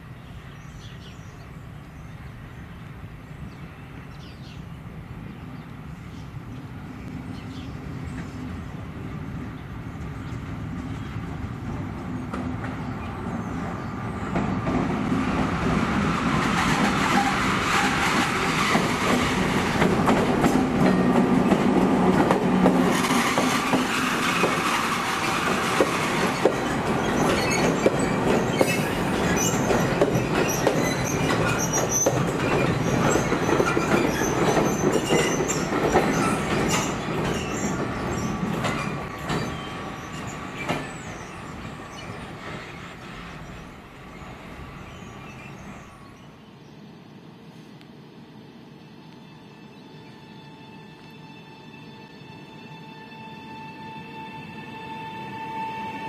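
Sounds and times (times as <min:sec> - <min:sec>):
diesel locomotive engine under load: 0:05.2 - 0:50.8
wheels clacking over rail joints: 0:14.3 - 0:44.0
high wheel squeals: 0:24.4 - 0:42.8.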